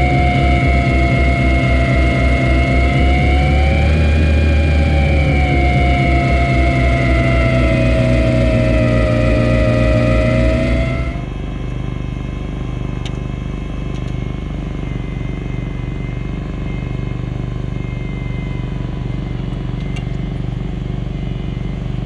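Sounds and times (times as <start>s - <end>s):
snow blower auger spinning: 0.0s - 11.3s
loader engine and blower drone: 0.0s - 22.0s.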